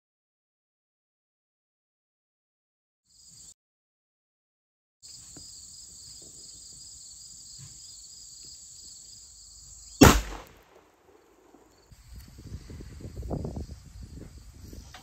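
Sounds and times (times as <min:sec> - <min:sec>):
high insect chorus: 0:03.1 - 0:03.6, 0:05.0 - 0:15.0
shotgun blast: 0:10.0 - 0:11.6.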